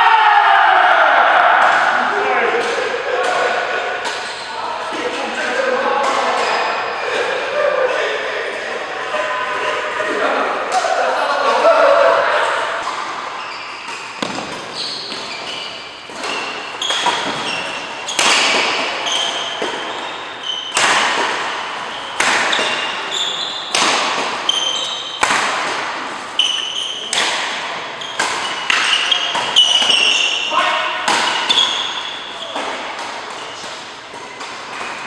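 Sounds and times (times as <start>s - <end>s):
rackets hitting shuttlecock: 1.6s - 4.4s, 13.8s - 35.0s
shoes squeaking on court: 4.1s - 4.6s, 12.8s - 25.3s, 26.2s - 27.2s, 27.9s - 30.6s, 31.2s - 35.0s.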